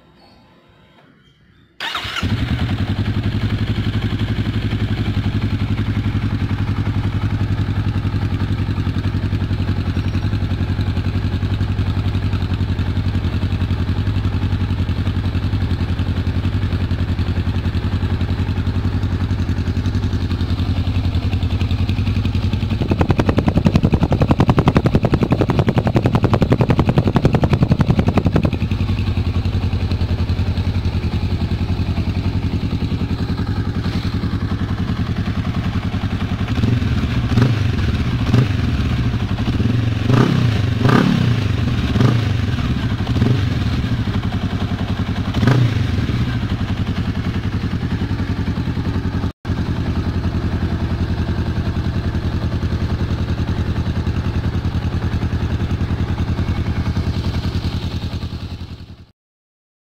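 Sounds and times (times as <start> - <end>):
engine throttle blips: 1.8 - 6.0, 16.4 - 44.4
motorcycle engine idling: 1.8 - 59.1.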